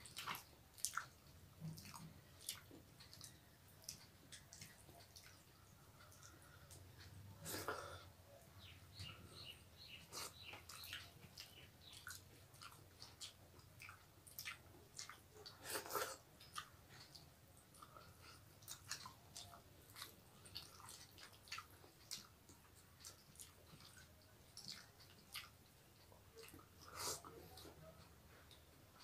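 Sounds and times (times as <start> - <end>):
faint chewing and mouth clicks: 0.0 - 29.0.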